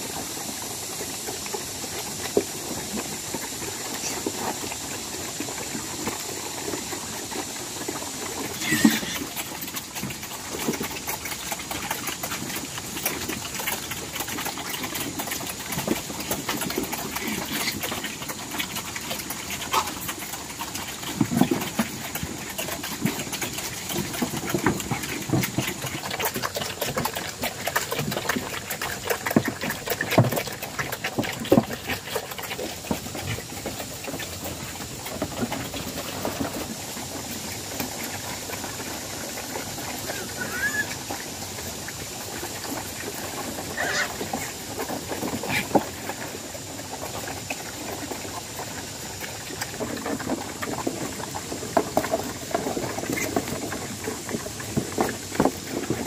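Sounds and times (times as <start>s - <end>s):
pigs chomping and slurping: 0.0s - 56.0s
pig grunts: 8.4s - 33.9s, 39.4s - 41.2s, 43.6s - 44.6s.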